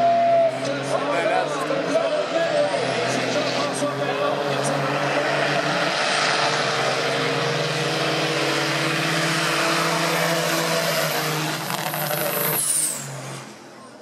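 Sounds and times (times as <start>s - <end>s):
truck diesel engines at full throttle: 0.0s - 14.0s.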